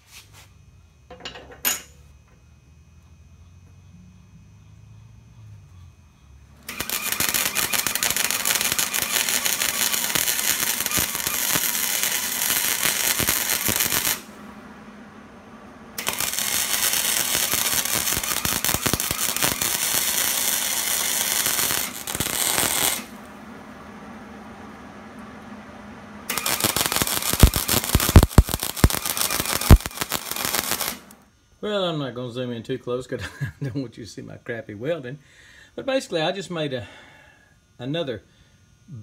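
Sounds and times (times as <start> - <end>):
welding arc crackling: 6.5 - 14.5, 15.9 - 23.4, 26.2 - 31.3.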